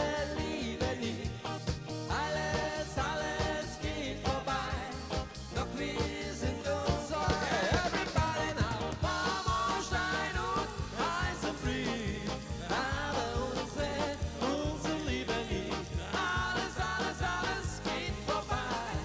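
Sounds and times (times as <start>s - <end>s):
brass dance band playing: 6.9s - 19.0s.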